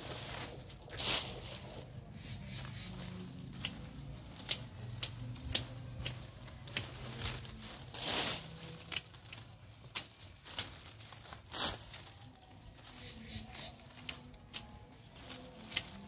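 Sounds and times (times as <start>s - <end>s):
foliage rustling: 0.0s - 16.0s
pruning shears snipping twigs: 0.9s - 12.0s, 12.9s - 16.0s.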